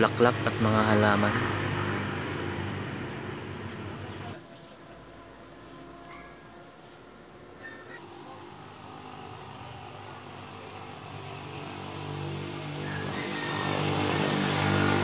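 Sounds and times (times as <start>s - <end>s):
motorcycle engine approaching: 8.0s - 15.0s.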